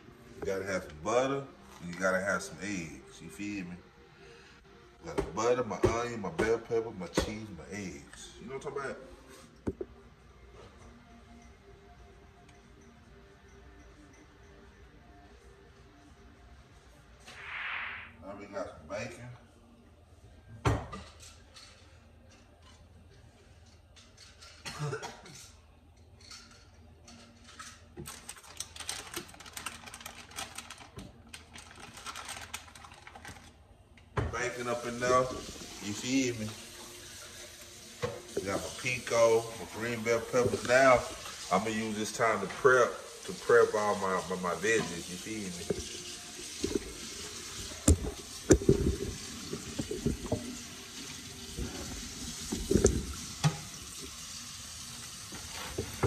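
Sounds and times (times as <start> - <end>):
plastic packaging crinkling: 28.1 - 33.6.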